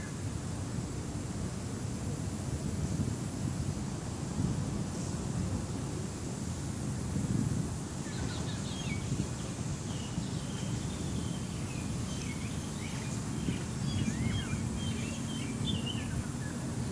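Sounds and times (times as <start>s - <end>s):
wind rumble on microphone: 0.0s - 16.9s
birds chirping: 8.0s - 16.9s.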